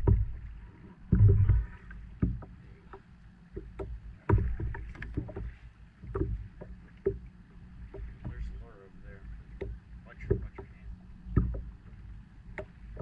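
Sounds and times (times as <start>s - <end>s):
dull thumps against kayak hull: 0.0s - 8.6s, 9.3s - 13.0s
fishing gear clicks and knocks: 2.2s - 5.5s.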